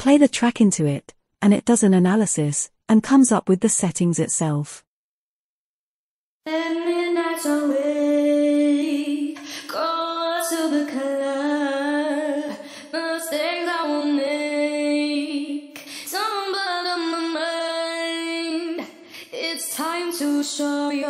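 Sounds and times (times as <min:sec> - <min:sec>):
woman singing with vibrato: 0:06.5 - 0:21.0.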